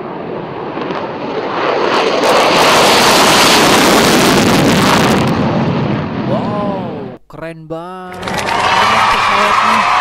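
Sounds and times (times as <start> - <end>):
jet roar with crackle: 0.0 - 6.3.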